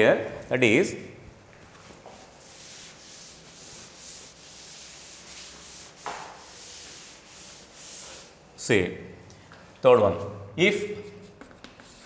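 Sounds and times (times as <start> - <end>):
cloth wiping chalkboard: 1.6 - 8.6, 10.8 - 12.0.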